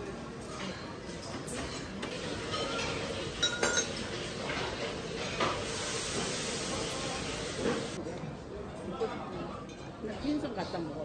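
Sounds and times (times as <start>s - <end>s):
glassware and dishes clinking: 0.4s - 5.5s
steady hiss: 2.2s - 8.0s.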